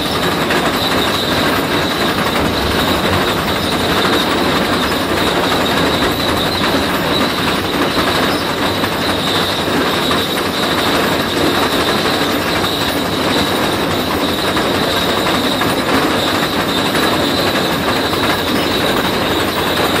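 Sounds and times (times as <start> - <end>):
high whine: 1.4 - 7.6.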